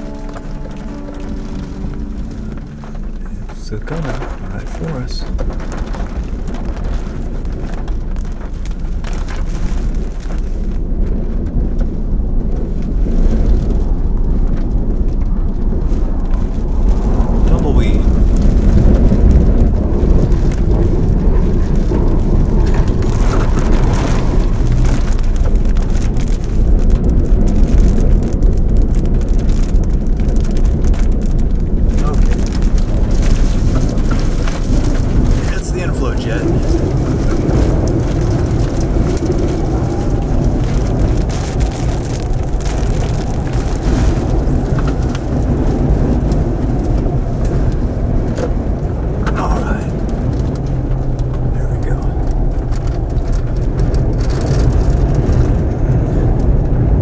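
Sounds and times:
strong wind buffeting microphone: 0.0 - 57.0.

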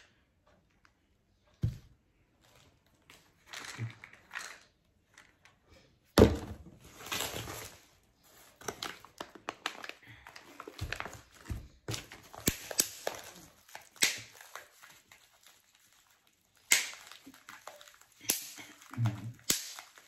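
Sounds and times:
objects thumping on table: 6.2 - 6.7
plastic packaging rustling: 6.8 - 20.0.

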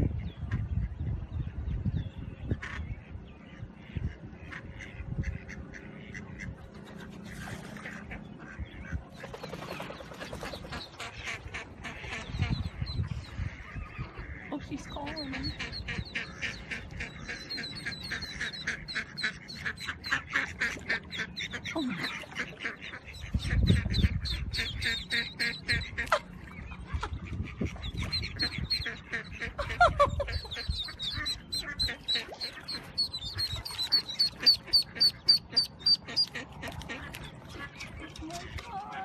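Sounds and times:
ducklings peeping: 0.0 - 39.0
duck quacking: 10.6 - 39.0.

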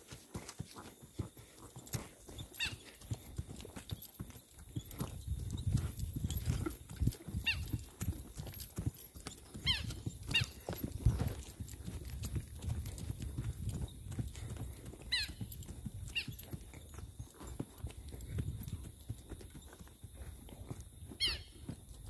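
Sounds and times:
horse hooves on hard dirt: 0.0 - 22.0.

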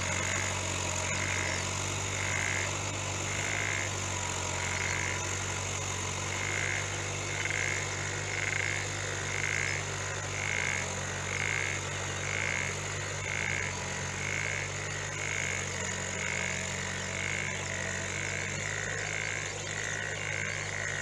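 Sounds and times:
frog croaking: 0.0 - 21.0
tractor engine low hum: 0.0 - 21.0.

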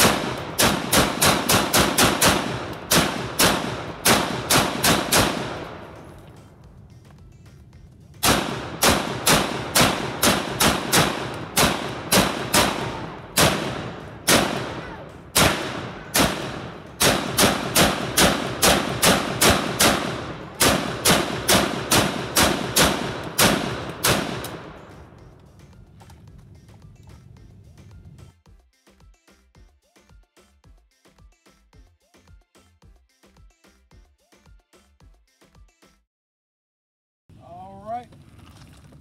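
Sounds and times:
pistol gunshots echoing: 0.0 - 6.5, 8.2 - 25.2.

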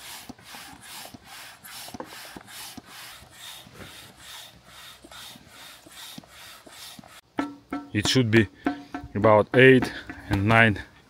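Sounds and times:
hand air pump strokes: 0.0 - 7.3.

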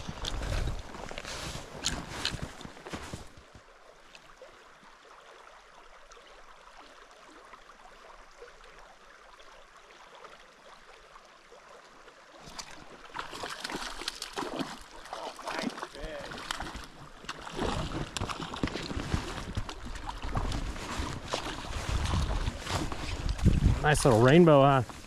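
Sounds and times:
river flowing: 0.0 - 25.0
rough crackling noise: 15.6 - 25.0.

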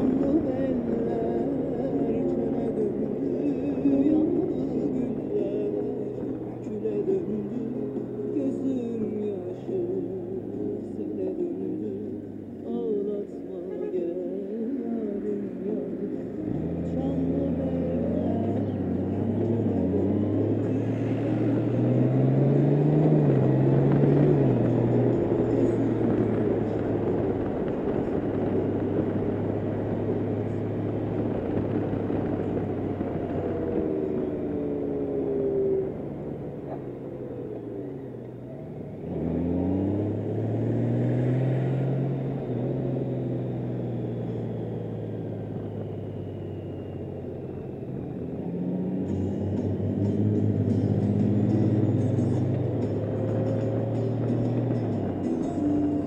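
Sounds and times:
road noise: 0.0 - 56.0
motorcycle engine running: 14.5 - 56.0
wind noise: 23.3 - 34.6.

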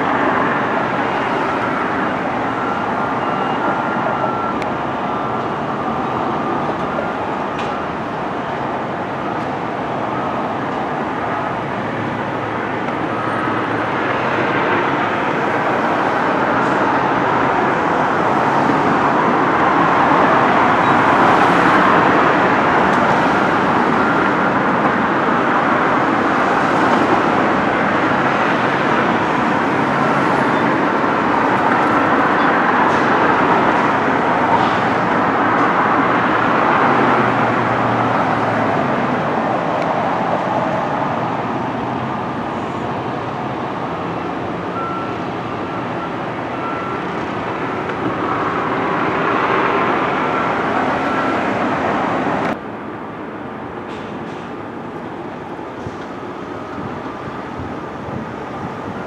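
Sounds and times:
road traffic passing: 0.0 - 59.0.

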